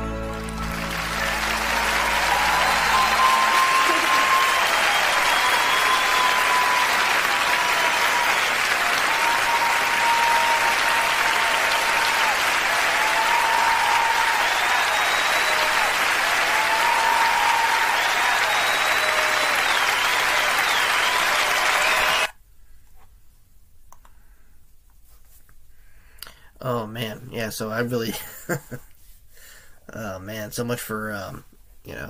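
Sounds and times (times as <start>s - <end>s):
concert audience applauding: 0.0s - 22.3s.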